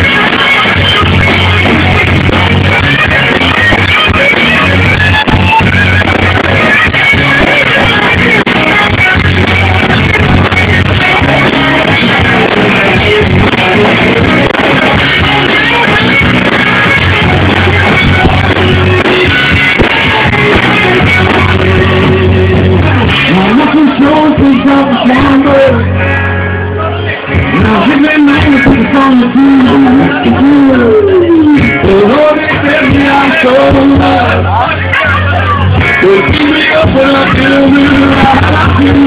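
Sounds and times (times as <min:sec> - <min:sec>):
person singing: 0:00.0 - 0:26.1, 0:26.8 - 0:39.0
electric guitar: 0:00.0 - 0:39.0
heavy bass line: 0:00.0 - 0:39.0.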